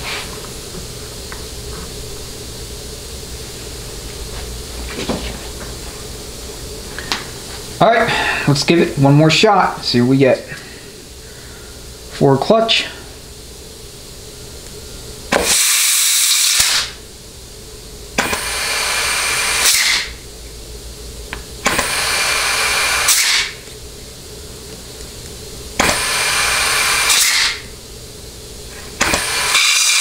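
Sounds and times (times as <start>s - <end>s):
compressed air blow gun hissing: 15.3s - 17.0s, 18.2s - 20.2s, 21.6s - 23.7s, 25.8s - 27.8s, 28.6s - 30.0s.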